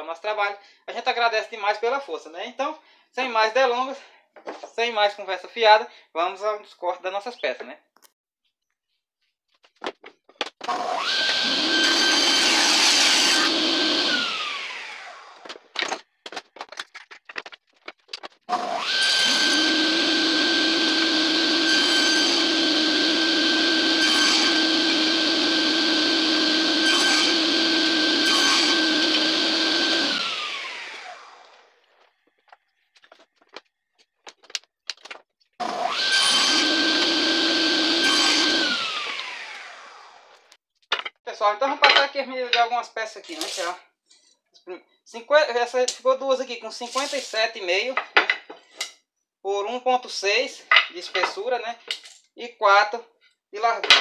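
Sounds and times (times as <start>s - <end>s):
saw blade winding down: 10.7s - 15.4s, 18.5s - 31.7s, 35.6s - 40.4s
table saw running: 10.7s - 15.5s, 18.5s - 31.7s, 35.6s - 40.3s
wood pieces knocking on table: 15.4s - 18.4s, 40.8s - 41.2s, 48.0s - 48.7s.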